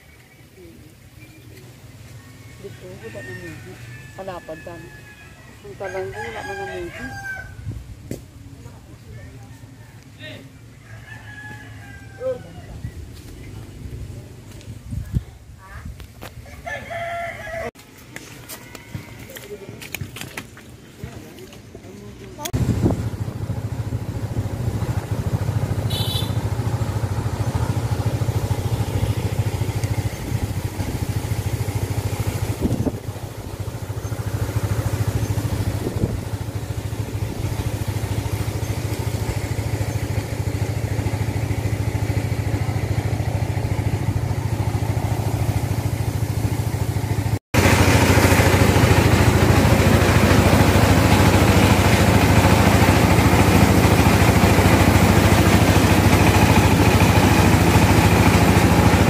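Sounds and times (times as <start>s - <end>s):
small engine humming: 22.3s - 59.0s
rice mill running: 47.6s - 59.0s.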